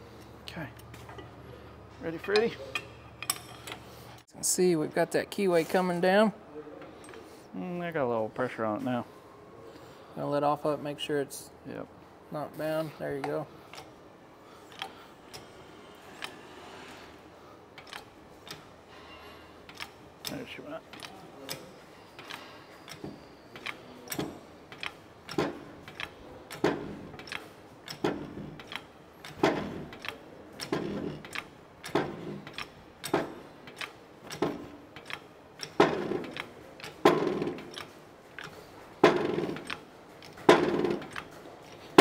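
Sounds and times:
shop press metal clacks: 17.8s - 42.0s.

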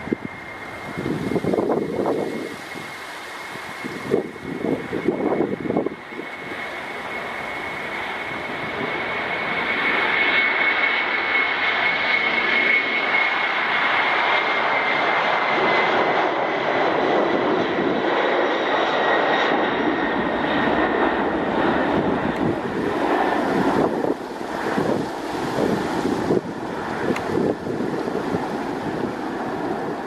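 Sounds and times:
jet engines whining: 0.0s - 30.0s.

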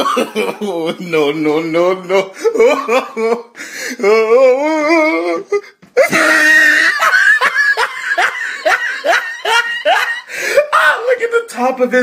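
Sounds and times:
rapid rhythmic laughter: 6.1s - 10.4s.

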